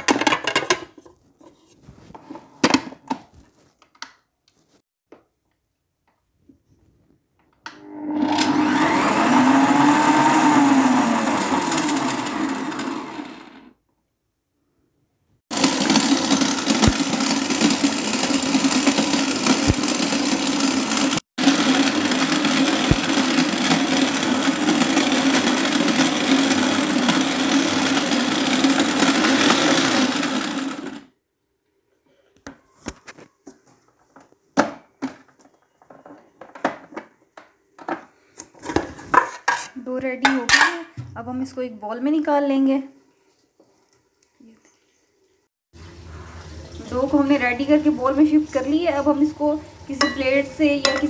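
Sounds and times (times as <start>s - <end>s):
food processor motor hum: 7.7s - 13.8s, 15.5s - 31.1s.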